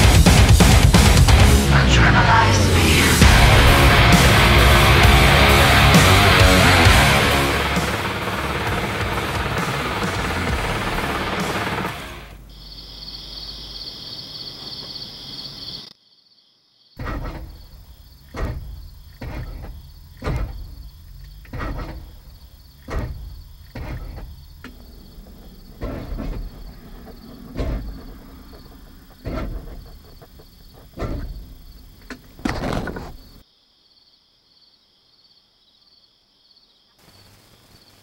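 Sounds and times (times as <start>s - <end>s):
crickets chirping: 11.6s - 38.0s
dull thumps: 17.0s - 33.4s.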